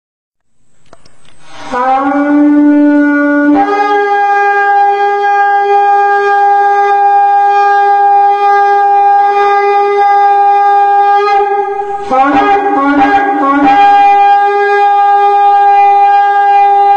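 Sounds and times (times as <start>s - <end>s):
horn blast: 1.4s - 16.9s.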